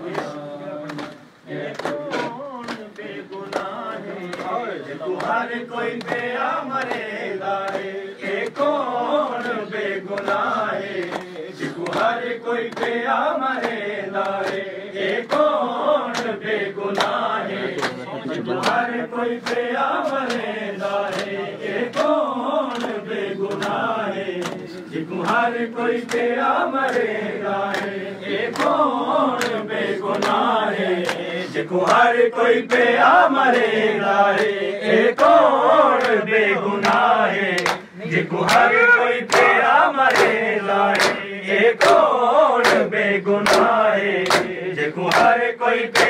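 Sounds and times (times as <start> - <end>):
men chanting together: 0.0 - 46.0
hands slapping chests: 0.1 - 4.6, 6.0 - 8.7, 11.0 - 15.5, 17.0 - 17.2, 19.4 - 23.8, 24.4 - 25.4, 26.0 - 27.0, 29.4 - 32.0, 36.8 - 46.0.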